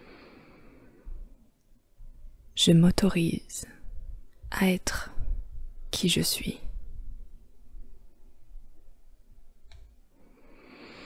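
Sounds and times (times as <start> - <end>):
low rumble: 3.7 - 6.0, 6.6 - 9.6
sharp click: 9.6 - 9.9.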